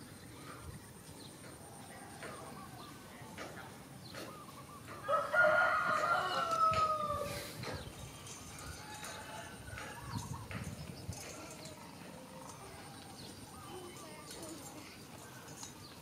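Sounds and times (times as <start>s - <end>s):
rooster crowing: 5.0s - 7.3s.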